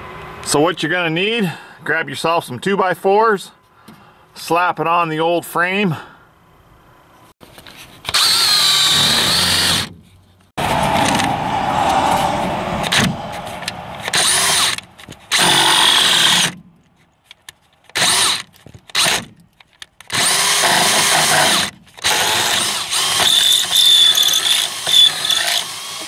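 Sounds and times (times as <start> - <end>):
power drill boring through wood: 8.1 - 9.9, 14.0 - 16.6, 18.0 - 19.2, 20.1 - 26.0.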